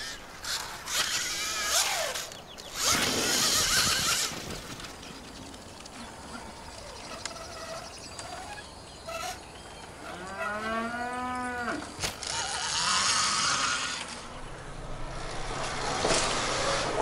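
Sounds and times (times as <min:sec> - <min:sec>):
cow mooing: 0:10.1 - 0:11.9.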